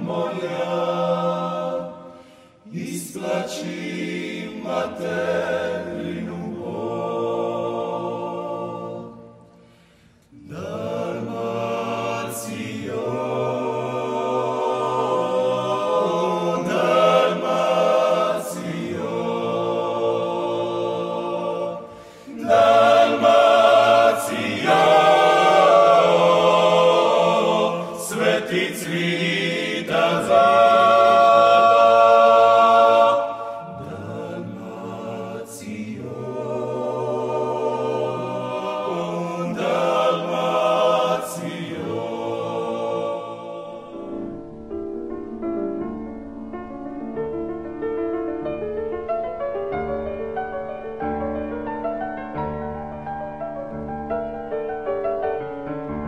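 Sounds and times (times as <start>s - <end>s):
a cappella vocal group singing: 0.0s - 44.4s.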